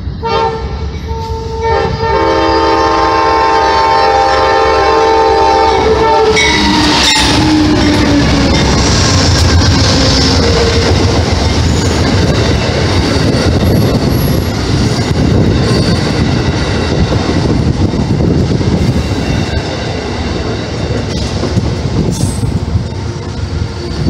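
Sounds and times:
passenger train passing: 0.0 - 24.0.

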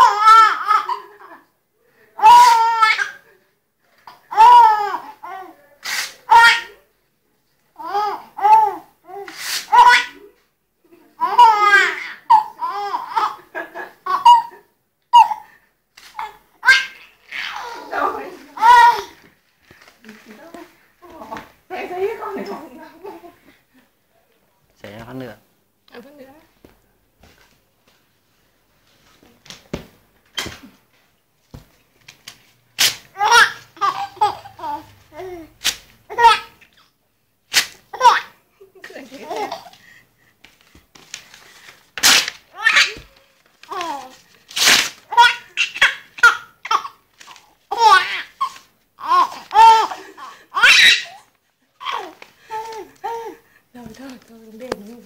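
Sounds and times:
baby laughing and squealing: 0.0 - 1.4, 4.3 - 6.8, 7.8 - 10.3, 14.1 - 15.5, 16.1 - 19.2, 33.2 - 35.5, 42.0 - 43.1, 43.7 - 53.4.

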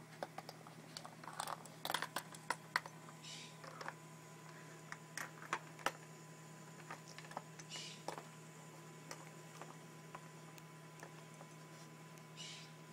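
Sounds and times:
plastic parts clicking and knocking: 0.2 - 3.0.

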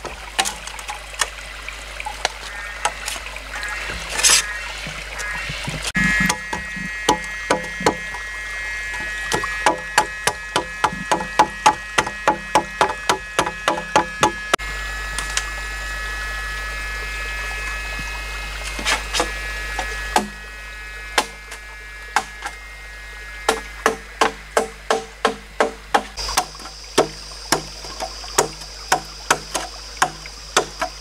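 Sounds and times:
machete chopping bamboo: 9.3 - 14.4, 20.2 - 20.4, 21.2 - 21.4, 22.2 - 22.6, 23.5 - 31.0.

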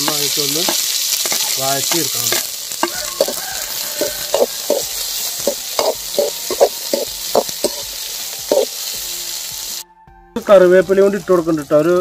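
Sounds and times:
metal spoon scraping a pan: 0.0 - 8.8
shallots sizzling in hot oil: 0.0 - 9.8, 10.4 - 12.0.

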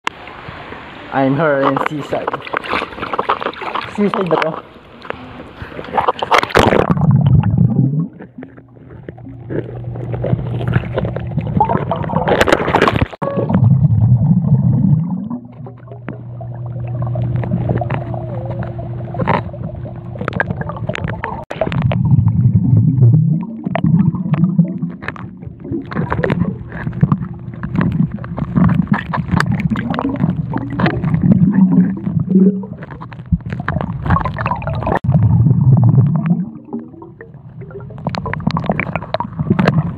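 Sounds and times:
underwater gurgling and bubbling: 4.7 - 39.9
low underwater rumble: 4.8 - 39.9
steady low hum: 13.3 - 39.9.

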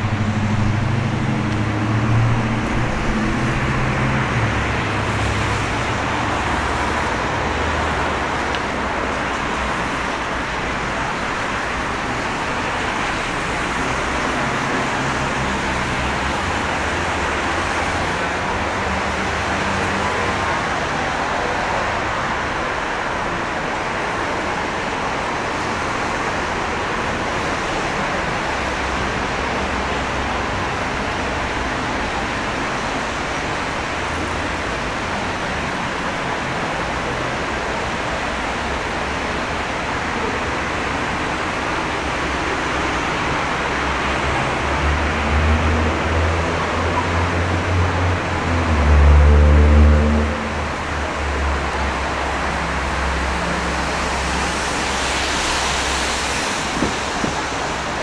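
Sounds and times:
vehicle low rumble: 0.0 - 7.0
traffic on wet street: 0.0 - 58.0.

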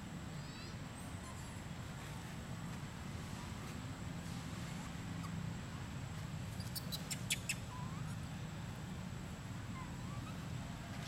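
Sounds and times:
monkey squeaks: 6.5 - 8.2, 9.8 - 10.4.

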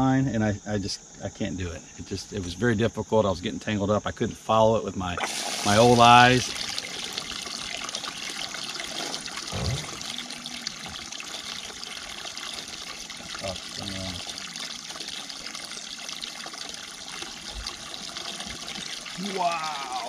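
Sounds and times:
running water trickling: 5.2 - 20.0.

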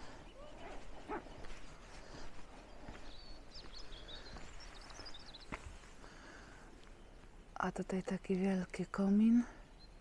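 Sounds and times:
faint outdoor ambience: 0.0 - 10.0
light footsteps: 0.6 - 6.1.

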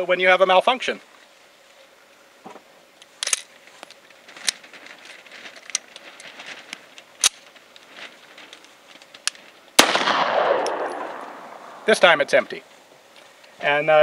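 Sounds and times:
pistol action metallic clicks: 3.1 - 3.5, 9.2 - 11.4.

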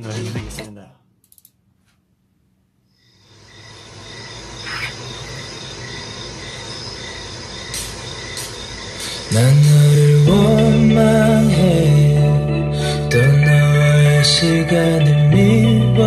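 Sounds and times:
hissing ambient haze: 3.0 - 11.9
faint steady high tones: 3.0 - 15.7.

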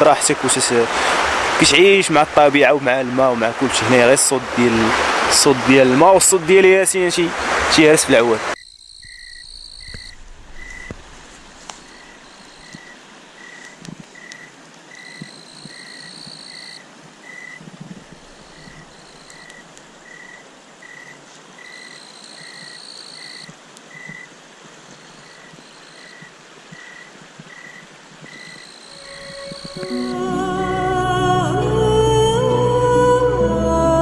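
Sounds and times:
running water hiss: 0.0 - 30.9
crickets trilling: 8.6 - 30.2
short high peeps: 28.4 - 30.6.

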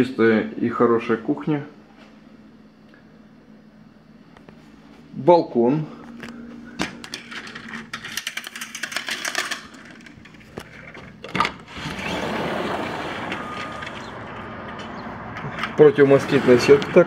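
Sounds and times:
outdoor noise: 7.0 - 17.0
blind slats clattering: 11.0 - 17.0.

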